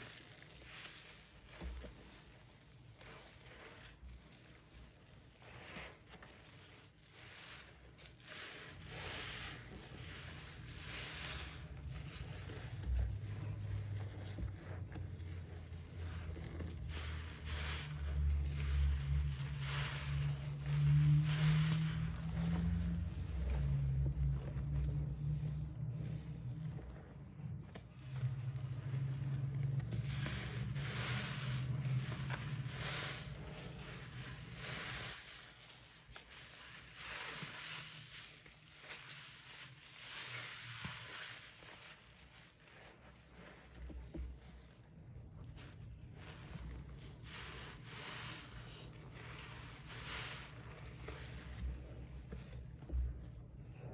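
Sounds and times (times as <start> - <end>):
sponges squelching in suds: 0.0 - 53.9
foam fizzing: 15.3 - 26.2, 28.0 - 44.1.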